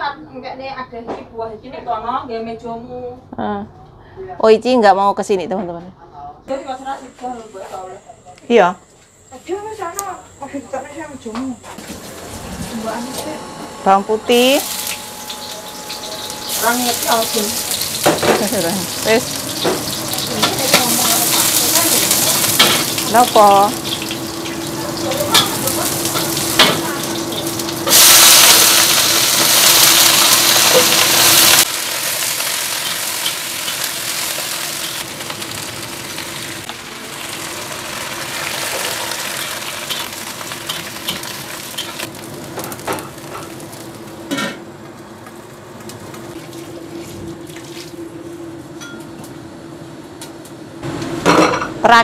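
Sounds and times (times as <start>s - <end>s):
cabbage sizzling in a wok: 14.3s - 46.4s.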